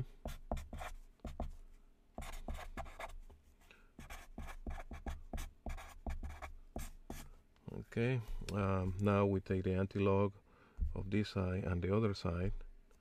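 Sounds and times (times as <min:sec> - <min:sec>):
marker writing on paper: 0:00.2 - 0:01.6, 0:02.2 - 0:03.3, 0:04.0 - 0:07.2.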